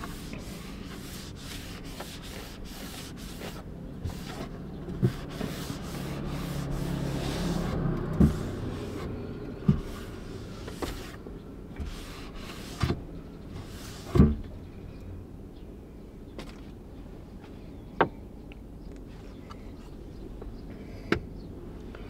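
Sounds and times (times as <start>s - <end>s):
cloth wiping wooden table: 0.0s - 9.1s, 11.8s - 13.0s.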